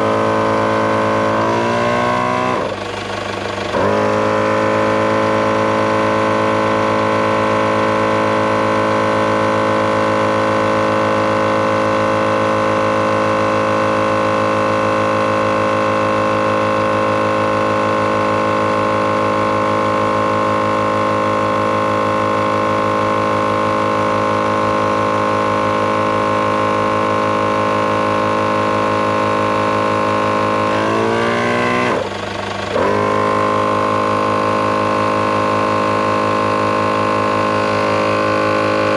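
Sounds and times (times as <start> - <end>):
air compressor running: 0.0 - 38.9.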